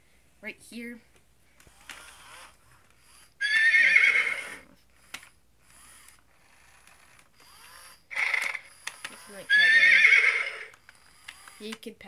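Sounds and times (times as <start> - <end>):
toy motor whirring and clicking: 1.6 - 3.8, 4.4 - 12.0
toy pony whinnying: 3.4 - 4.6, 6.4 - 11.6.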